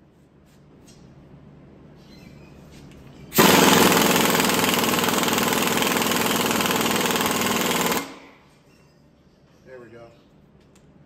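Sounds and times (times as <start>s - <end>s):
air impact wrench hammering: 3.4s - 8.4s.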